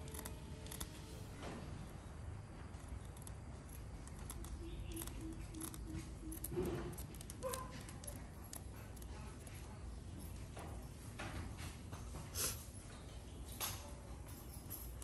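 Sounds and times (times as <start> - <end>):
scissors snipping fabric: 0.0 - 1.1.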